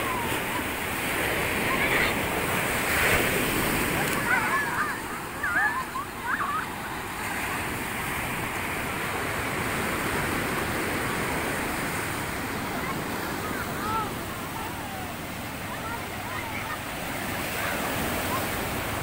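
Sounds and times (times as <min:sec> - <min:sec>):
surf washing up beach: 0:00.0 - 0:19.0
children shouting: 0:03.9 - 0:07.0.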